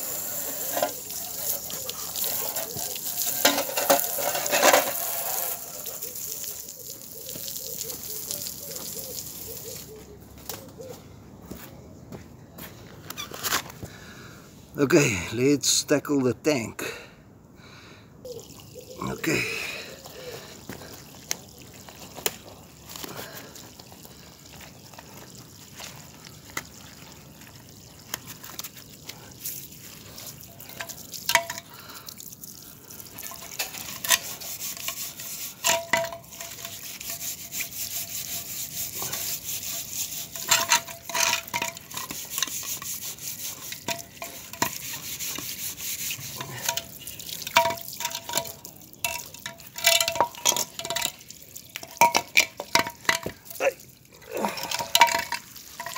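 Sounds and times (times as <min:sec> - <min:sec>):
steel wool scrubbing metal: 0:00.0 - 0:06.4, 0:33.2 - 0:51.1
garden hose spraying water: 0:00.0 - 0:10.1, 0:18.3 - 0:55.9.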